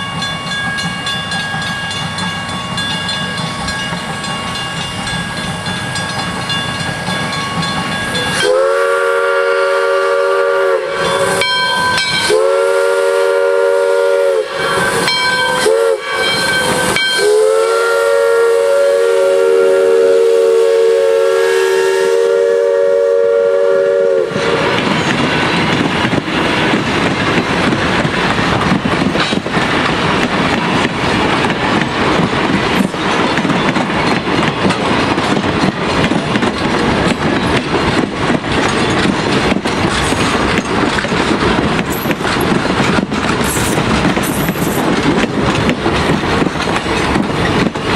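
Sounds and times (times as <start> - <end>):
train wheels clicking over rail joints: 0.0 - 20.4, 22.2 - 47.9
steam locomotive whistle blasts: 8.1 - 24.7.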